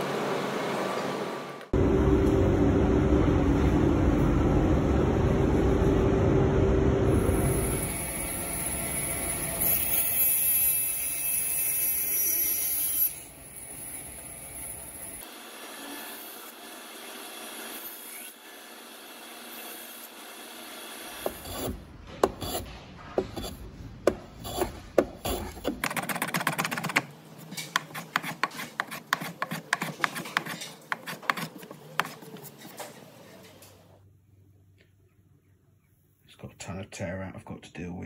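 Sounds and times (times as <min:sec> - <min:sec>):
block plane shaving wood: 0:27.7 - 0:32.8.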